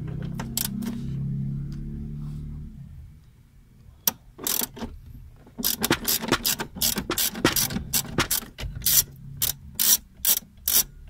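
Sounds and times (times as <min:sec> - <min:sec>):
screwdriver ratchet clicking: 0:04.4 - 0:04.7, 0:05.6 - 0:10.9.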